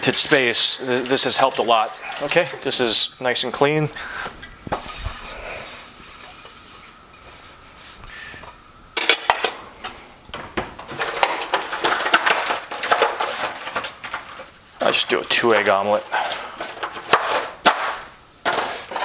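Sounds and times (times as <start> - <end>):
kitchenware clattering: 0.0 - 3.0, 8.0 - 19.0
cloth rubbing a frying pan: 4.7 - 8.0.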